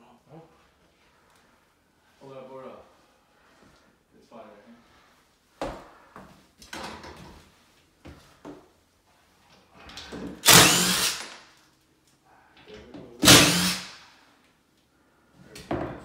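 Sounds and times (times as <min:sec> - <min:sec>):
cordless drill running: 0:10.4 - 0:11.4, 0:13.2 - 0:13.9.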